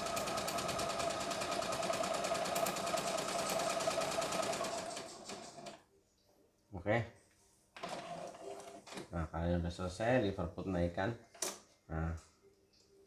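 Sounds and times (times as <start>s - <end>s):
sewing machine stitching: 0.0s - 5.8s, 7.8s - 9.1s.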